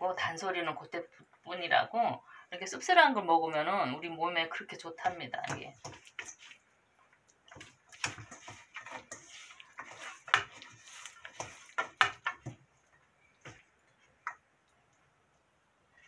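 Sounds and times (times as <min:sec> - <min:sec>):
hand mixing food in metal bowl: 0:04.8 - 0:14.5.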